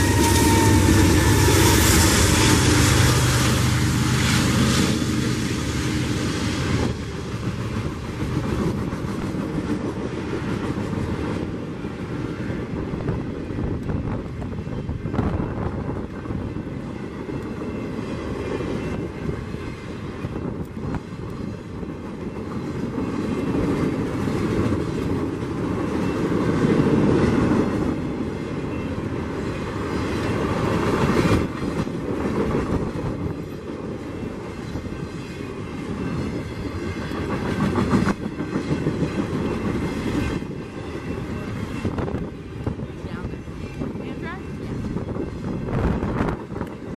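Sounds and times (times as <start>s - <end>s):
train wheels rumbling on rails: 0.0s - 46.9s
wheels clacking over rail joints: 20.2s - 42.8s.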